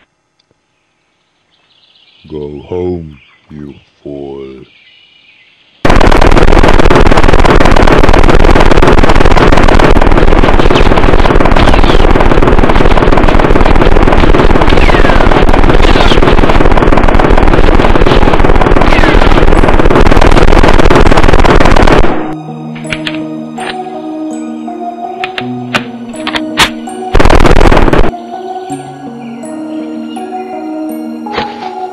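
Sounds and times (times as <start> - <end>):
automatic gunfire: 5.9 - 22.4, 26.6 - 28.1.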